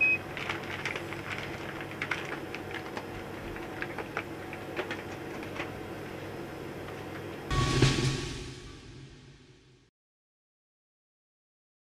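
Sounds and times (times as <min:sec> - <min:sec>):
ventilation hum: 0:00.0 - 0:09.9
plastic bag crinkling: 0:00.2 - 0:05.9.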